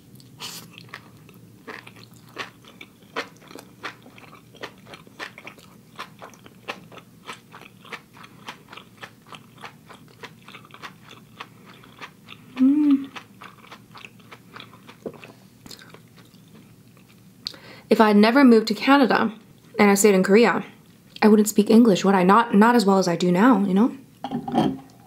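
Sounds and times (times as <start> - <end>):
person chewing crunchy food: 0.0 - 17.3.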